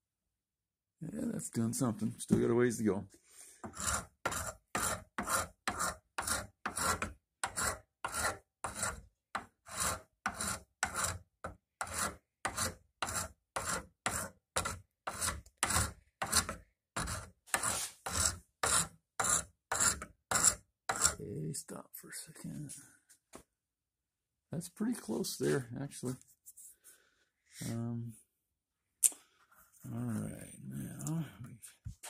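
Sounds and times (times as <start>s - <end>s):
file rasping on wood: 3.6s - 21.2s.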